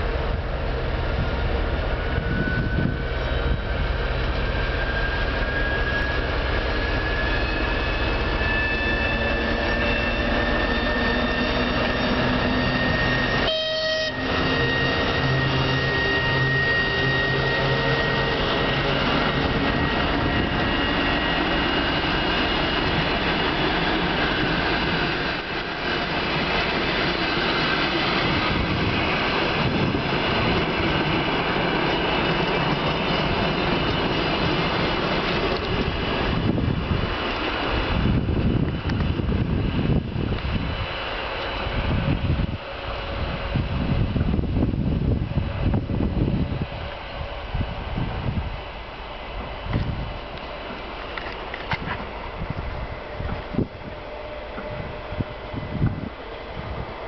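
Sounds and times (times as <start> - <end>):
diesel locomotive engine whine: 0.0 - 57.0
train coaches rumbling on rails: 0.0 - 57.0.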